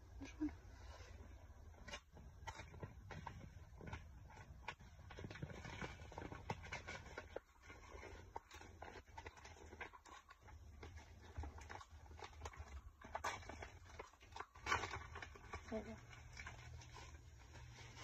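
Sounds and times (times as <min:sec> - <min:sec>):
envelope crinkling and tearing: 0:01.8 - 0:18.0.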